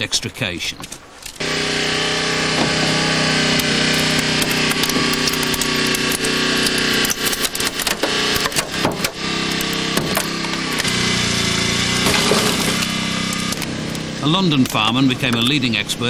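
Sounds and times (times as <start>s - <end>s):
steady motor drone: 1.4s - 16.0s
metal creaking and snapping: 3.6s - 10.9s.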